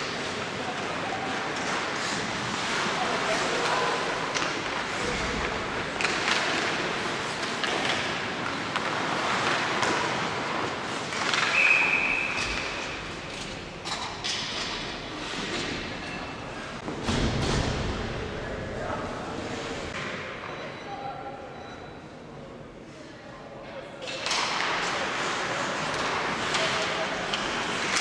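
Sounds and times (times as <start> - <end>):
hockey sticks and puck clacking: 0.0 - 17.8, 24.0 - 28.0
referee's whistle: 11.5 - 12.5.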